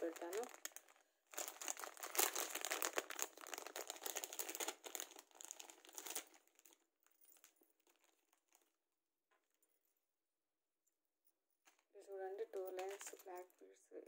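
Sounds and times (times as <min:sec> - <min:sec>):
plastic pouch crinkling: 0:00.0 - 0:08.8, 0:12.4 - 0:13.4.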